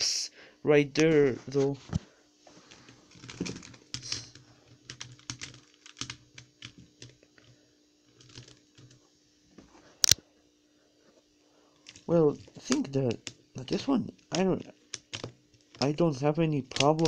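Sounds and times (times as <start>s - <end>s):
plastic cubes clicking and clattering: 3.1s - 7.2s, 14.9s - 16.0s, 16.6s - 17.0s.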